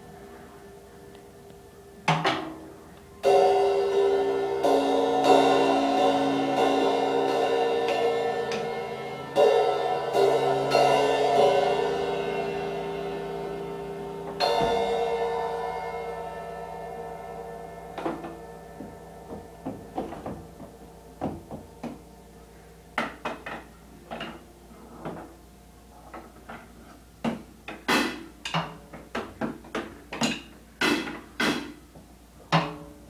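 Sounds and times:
cymbals struck and ringing: 0:02.4 - 0:24.6.

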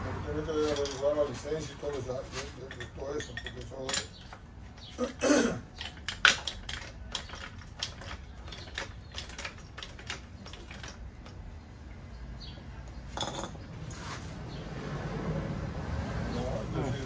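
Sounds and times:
metal parts clicking and clinking: 0:00.6 - 0:11.5.

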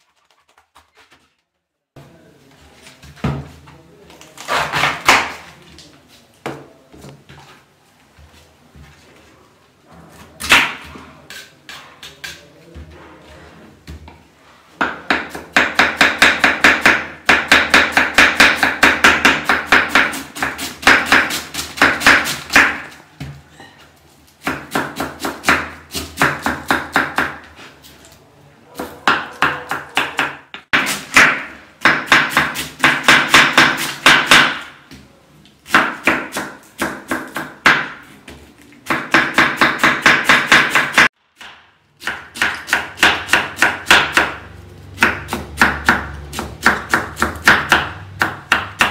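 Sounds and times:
knife chopping cabbage on board: 0:14.9 - 0:23.0, 0:24.4 - 0:27.4, 0:28.8 - 0:34.7, 0:38.8 - 0:44.4.

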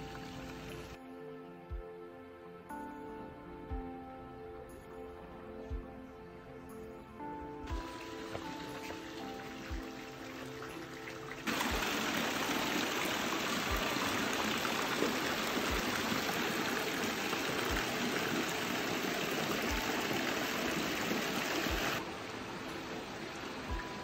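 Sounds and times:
rushing water: 0:00.0 - 0:01.0, 0:07.7 - 0:24.0
background music beats: 0:00.0 - 0:22.1.

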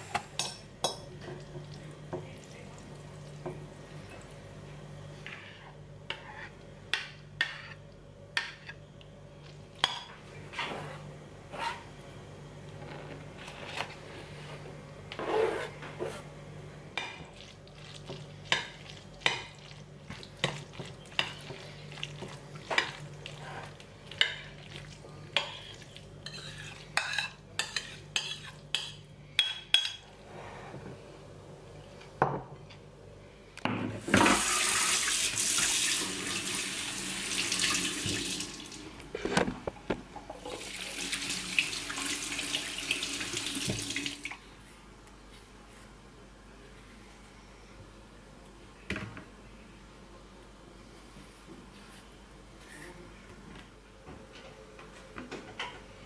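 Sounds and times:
water running from a tap: 0:34.2 - 0:38.8, 0:40.5 - 0:44.4.

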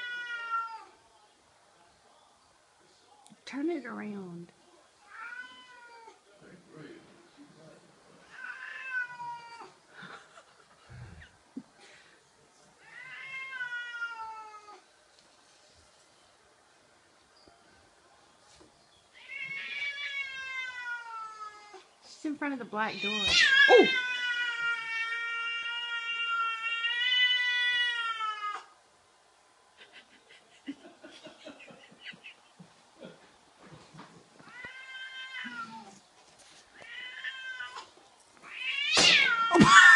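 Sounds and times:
cat meowing: 0:00.0 - 0:01.0, 0:05.0 - 0:06.2, 0:08.3 - 0:09.8, 0:12.8 - 0:14.8, 0:19.2 - 0:21.9, 0:23.0 - 0:28.7, 0:34.5 - 0:35.9, 0:36.8 - 0:39.9.

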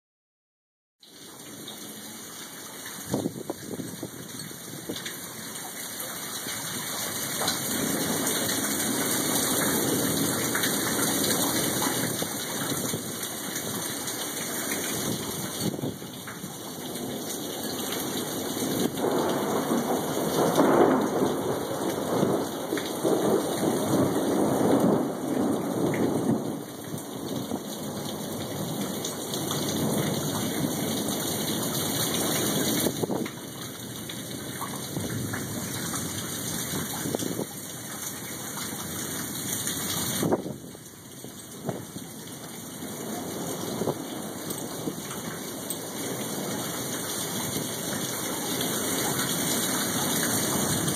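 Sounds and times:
steady rain falling: 0:01.0 - 0:50.9
thunder rolling: 0:07.4 - 0:13.2, 0:16.8 - 0:28.8.

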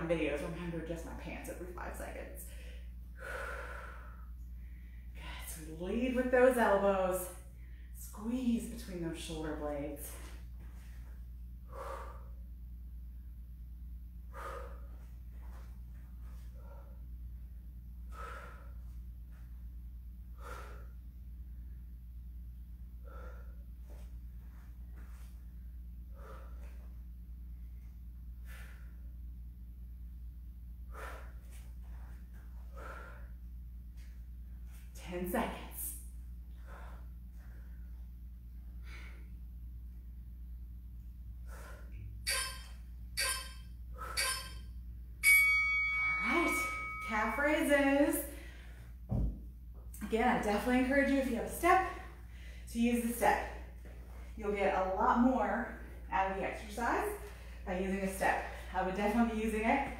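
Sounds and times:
steady low hum: 0:00.0 - 0:59.9
woman breathing hard: 0:02.4 - 0:05.2, 0:11.6 - 0:12.5, 0:14.2 - 0:15.3, 0:18.0 - 0:19.0, 0:20.2 - 0:21.9, 0:23.0 - 0:24.0, 0:26.0 - 0:27.0, 0:30.8 - 0:33.5, 0:36.4 - 0:39.5, 0:48.3 - 0:49.1
loud steady timer beep: 0:42.2 - 0:47.4.

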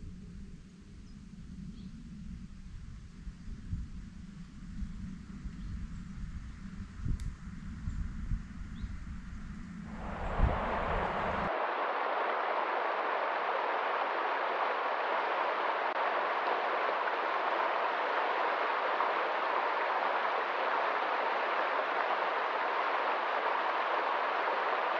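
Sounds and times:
stream rushing through rapids: 0:09.9 - 0:24.9.

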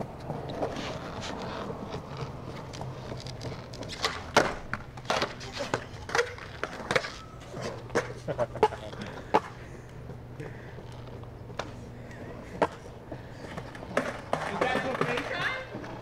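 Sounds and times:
skateboard rolling on stone: 0:00.0 - 0:16.0
skateboard pop: 0:03.9 - 0:09.5.

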